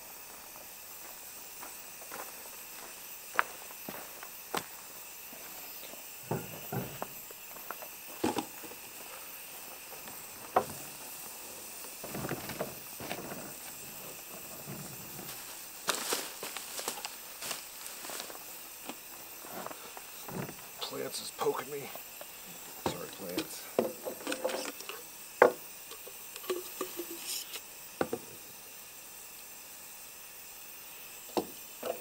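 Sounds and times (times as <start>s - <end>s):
steady hiss: 0.0s - 32.0s
footsteps on gravel: 0.2s - 5.7s, 6.3s - 20.6s
camp stove knocking on wooden table: 6.3s - 7.1s, 23.7s - 24.8s, 25.4s - 25.6s, 28.0s - 28.4s, 31.3s - 32.0s.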